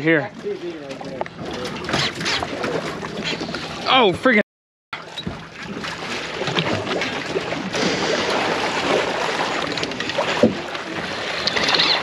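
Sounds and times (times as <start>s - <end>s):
wind and water rushing: 5.0s - 12.0s.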